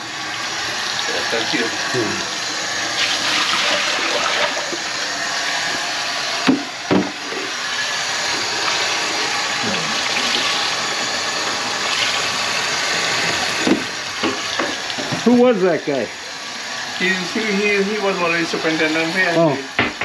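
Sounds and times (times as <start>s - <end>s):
tap water running into sink: 0.0s - 2.3s, 2.9s - 5.0s, 8.3s - 15.4s.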